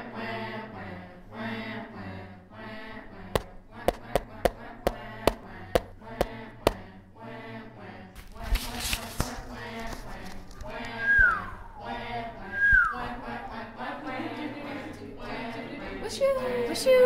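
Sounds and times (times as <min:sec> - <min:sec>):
humming chant-like voices: 0:00.0 - 0:17.0
plastic spool knocking on cardboard: 0:03.4 - 0:06.8.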